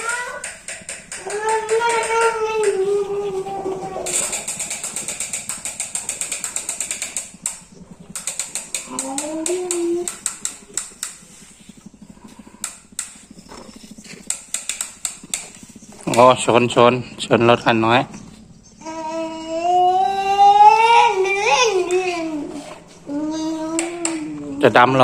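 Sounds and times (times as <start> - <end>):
child's vocal sound: 1.2 - 4.5, 8.8 - 10.2, 18.8 - 24.6.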